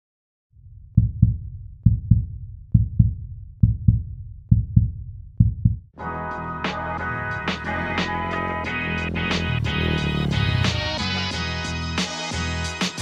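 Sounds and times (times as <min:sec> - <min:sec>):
heartbeat thumps: 0:00.7 - 0:05.9
music: 0:05.9 - 0:13.0.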